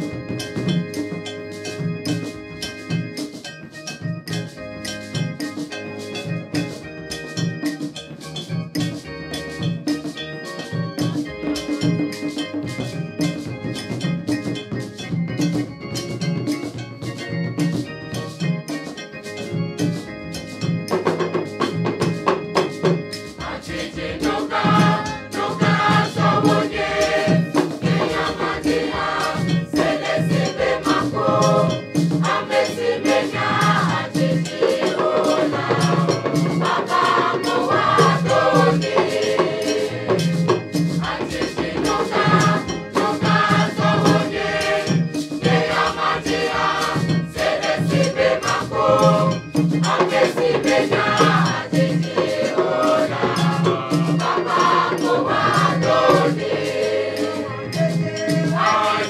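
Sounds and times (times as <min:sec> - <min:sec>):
hand drums steady beat: 0:00.0 - 0:59.0
choir singing in harmony: 0:22.3 - 0:59.0.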